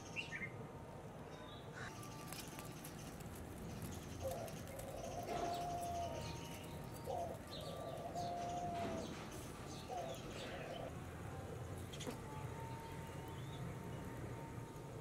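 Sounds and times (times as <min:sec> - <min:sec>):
dove cooing: 0:01.9 - 0:13.1.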